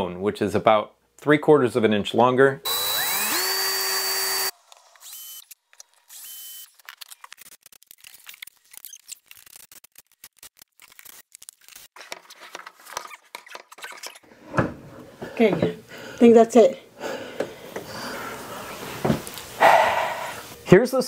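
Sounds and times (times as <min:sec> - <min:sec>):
cordless drill spinning: 0:02.7 - 0:07.3.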